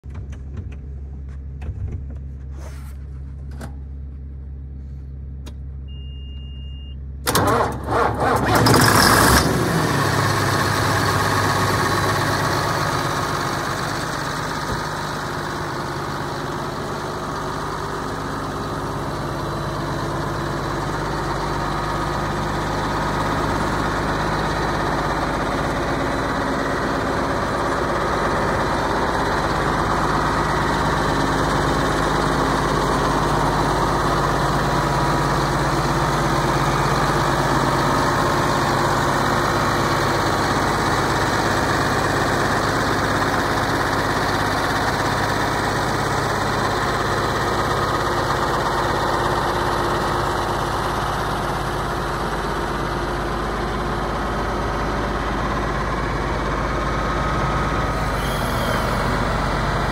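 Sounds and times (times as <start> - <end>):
diesel engine cranking and idling: 0.0 - 59.9
short beep: 5.8 - 7.1.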